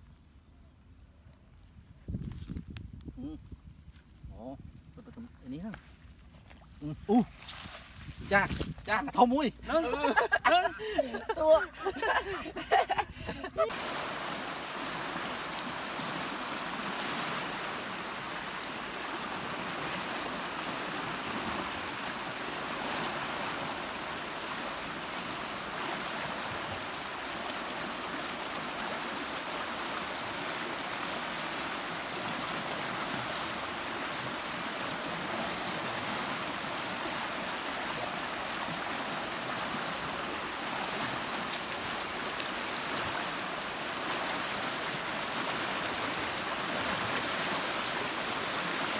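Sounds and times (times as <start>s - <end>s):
water rushing over rapids: 13.5s - 48.9s.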